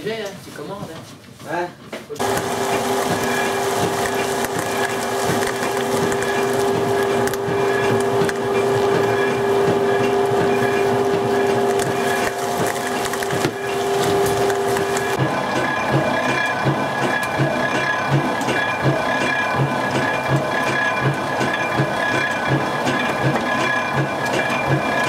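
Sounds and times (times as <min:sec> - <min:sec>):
nuts crackling in grinder: 0:02.2 - 0:15.2
grinder motor hum: 0:02.2 - 0:25.0.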